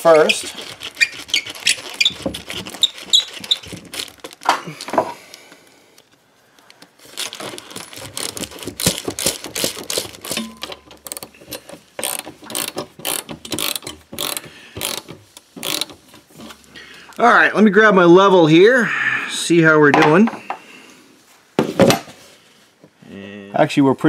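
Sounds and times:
handling clicks and scrapes: 0.0s - 17.2s
ratchet wrench clicking: 8.1s - 16.0s.

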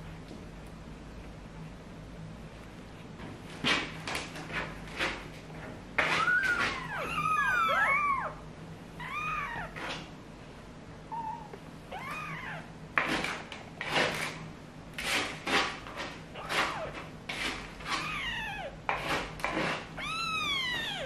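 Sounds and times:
kittens mewing: 6.2s - 8.4s, 9.0s - 9.8s, 11.1s - 12.8s, 18.0s - 18.8s, 20.0s - 21.0s.

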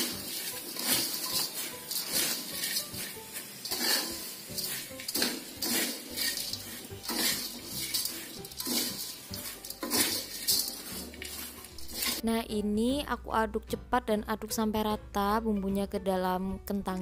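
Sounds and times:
metal spatula scraping a wok: 0.0s - 12.2s.

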